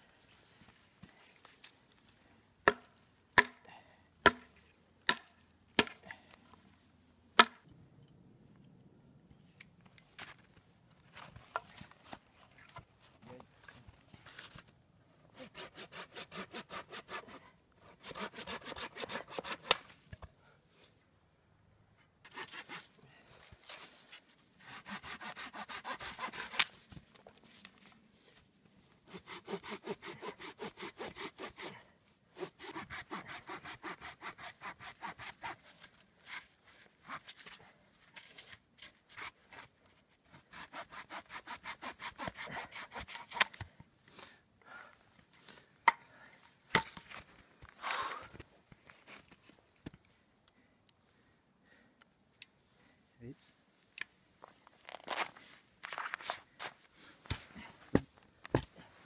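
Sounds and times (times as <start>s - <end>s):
hatchet chopping wood: 2.6s - 3.6s, 4.2s - 6.0s, 7.4s - 7.7s, 57.3s - 58.7s.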